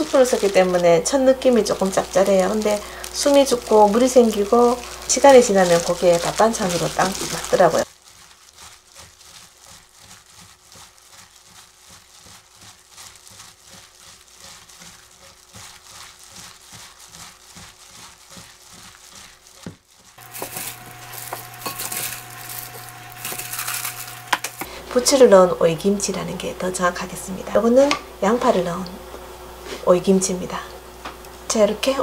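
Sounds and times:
faint steady hum: 0.0 - 7.8
wet squishing and glove crinkling: 0.0 - 28.6.

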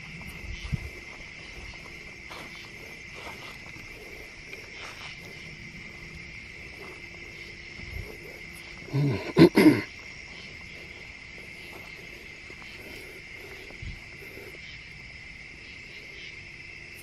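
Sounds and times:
footsteps through grass: 0.0 - 8.8
night insects trilling: 0.0 - 17.0.

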